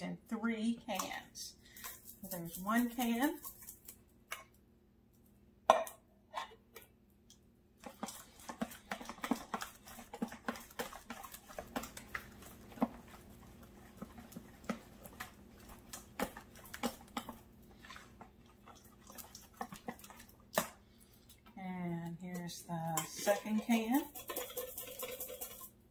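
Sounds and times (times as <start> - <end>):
whisk squelching in batter: 0.9 - 4.0, 7.8 - 21.4, 22.0 - 25.9
whisk wires clicking on bowl: 7.8 - 20.8, 22.0 - 25.8.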